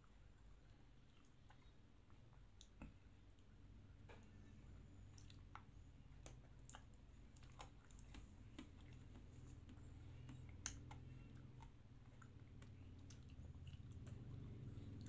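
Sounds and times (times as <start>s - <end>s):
low steady hum: 0.0s - 15.0s
wet mouth clicks and lip smacks: 5.1s - 14.4s.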